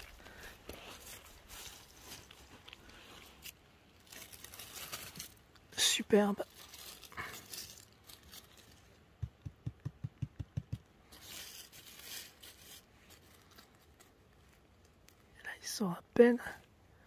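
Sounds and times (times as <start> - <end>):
dry leaves crackling and rustling: 0.0 - 9.1, 11.0 - 15.3.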